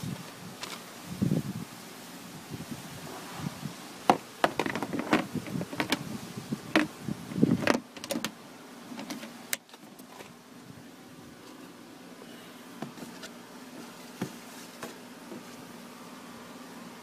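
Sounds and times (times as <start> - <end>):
handling clicks and knocks: 4.1 - 6.0, 6.7 - 8.4, 9.0 - 10.4.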